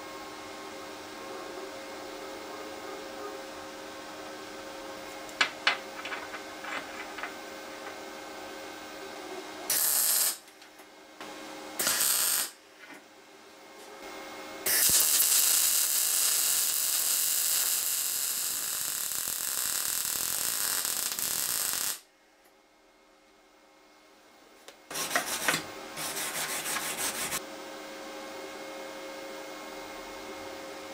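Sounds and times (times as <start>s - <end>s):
welding arc hissing: 9.7s - 10.4s, 11.8s - 12.6s, 14.6s - 22.1s.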